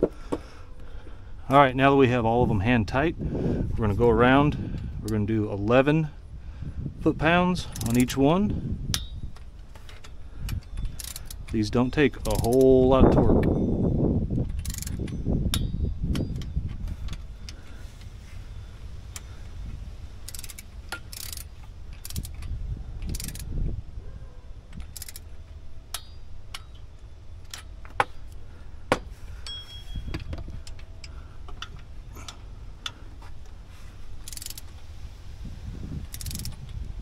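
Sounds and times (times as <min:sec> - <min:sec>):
torque wrench clicking: 0:07.7 - 0:08.2, 0:08.9 - 0:13.6, 0:14.4 - 0:17.6, 0:20.2 - 0:23.6, 0:24.7 - 0:28.4, 0:34.2 - 0:34.7, 0:36.1 - 0:36.8.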